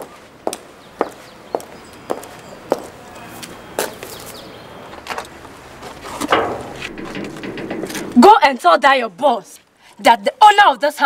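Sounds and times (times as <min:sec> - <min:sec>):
footsteps on pavement: 0:00.0 - 0:06.2
loud knock: 0:06.3 - 0:08.3.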